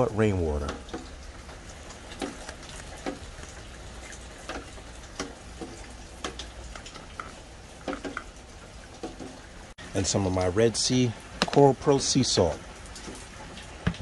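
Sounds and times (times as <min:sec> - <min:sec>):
drips ticking: 0:00.0 - 0:14.0
light rain hiss: 0:00.0 - 0:14.0.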